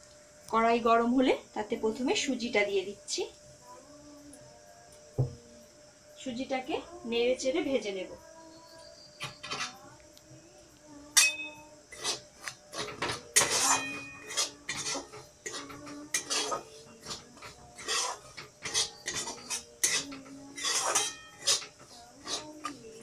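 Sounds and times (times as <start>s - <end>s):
utensil scraping metal pan: 11.2s - 23.0s.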